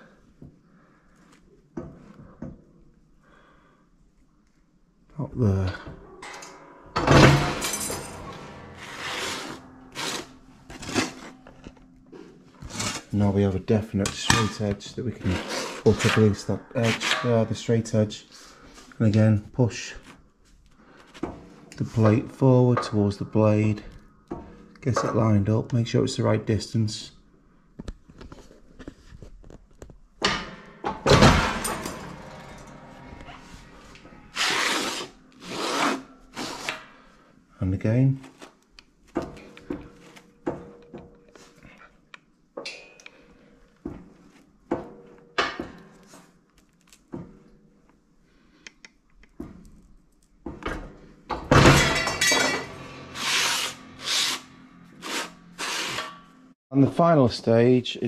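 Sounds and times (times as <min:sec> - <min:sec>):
metal plate scraping on steel: 0:06.0 - 0:13.4, 0:14.3 - 0:18.0, 0:30.2 - 0:37.1, 0:51.8 - 0:56.5
guillotine cutting metal sheet: 0:07.0 - 0:11.4, 0:30.3 - 0:36.8, 0:51.6 - 0:56.3
guillotine shear clunk: 0:30.2 - 0:33.2.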